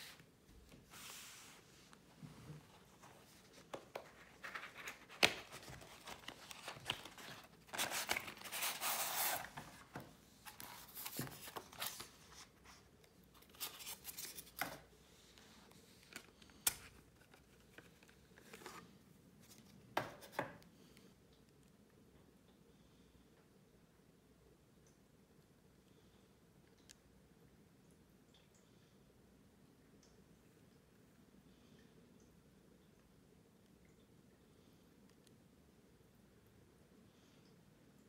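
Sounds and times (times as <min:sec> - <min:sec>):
rustling: 0:00.0 - 0:19.8
cardboard and foam scraping: 0:04.4 - 0:12.4.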